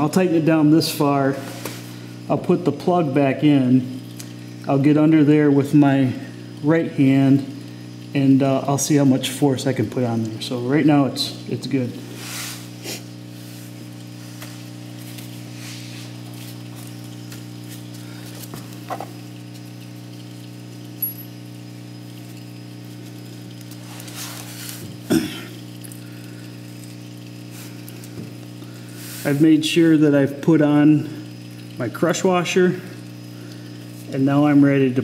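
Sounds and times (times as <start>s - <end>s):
steady low hum: 0.0s - 35.0s.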